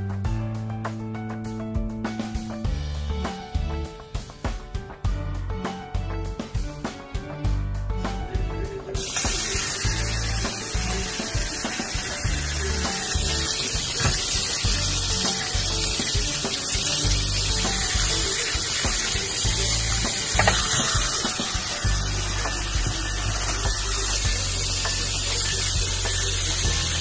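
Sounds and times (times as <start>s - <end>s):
background music: 0.0s - 27.0s
tap water running into colander: 9.0s - 27.0s.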